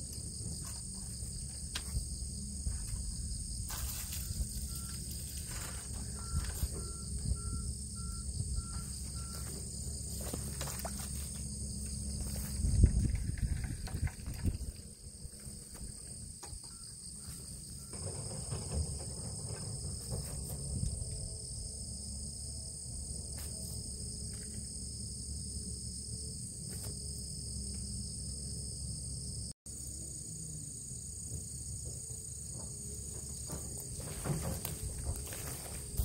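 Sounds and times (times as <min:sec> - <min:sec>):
wind rumble on microphone: 0:00.0 - 0:10.4, 0:11.1 - 0:24.3
insects singing: 0:00.0 - 0:36.0.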